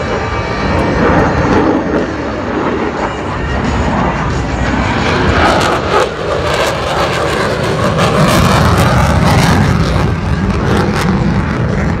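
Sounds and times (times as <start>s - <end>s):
jet fighter flying past: 0.0s - 12.0s.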